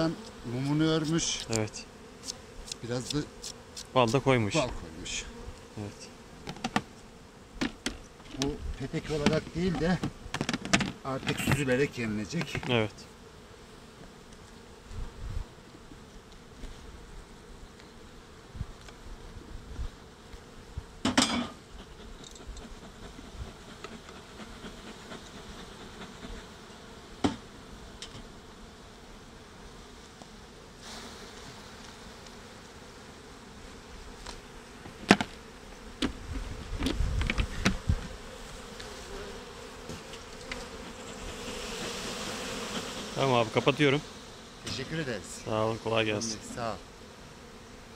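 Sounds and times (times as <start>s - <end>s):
bees buzzing: 0.0s - 47.9s
knocks of hive parts: 6.4s - 6.9s, 7.6s - 8.6s, 9.2s - 11.7s, 34.9s - 35.4s, 36.0s - 38.2s.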